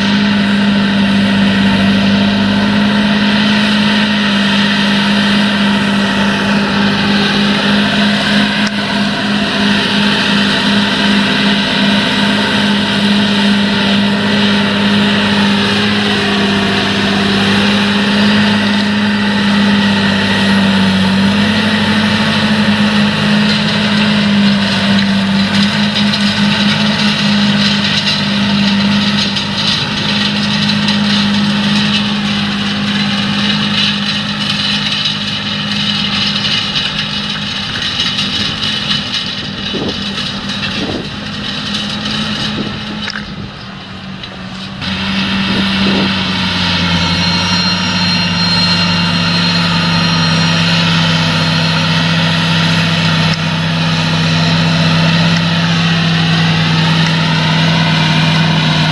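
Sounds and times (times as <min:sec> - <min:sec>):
tractor diesel engine under load: 0:00.0 - 0:58.9.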